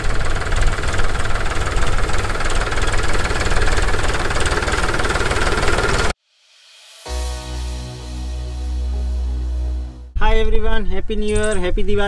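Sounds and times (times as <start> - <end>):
tractor diesel engine running: 0.0 - 6.2.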